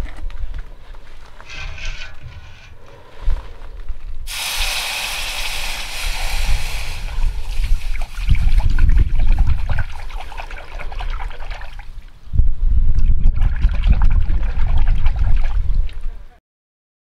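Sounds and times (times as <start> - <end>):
hot metal quenched in liquid: 1.5 - 2.8.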